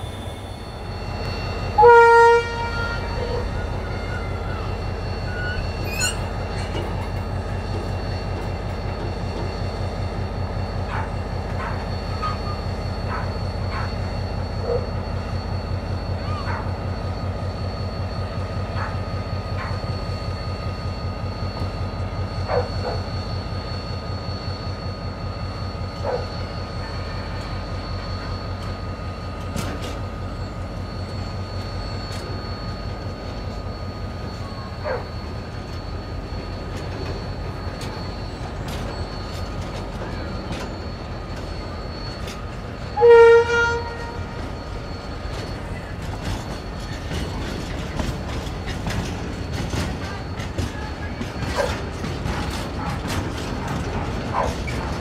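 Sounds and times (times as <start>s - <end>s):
diesel locomotive engine throbbing: 0.0s - 55.0s
wheel flange squeals: 0.0s - 55.0s
wagons clanking: 44.1s - 55.0s.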